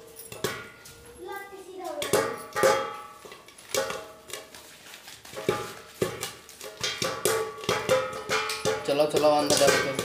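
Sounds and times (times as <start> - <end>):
kernels popping in hot oil: 2.0 - 4.7, 5.3 - 10.0.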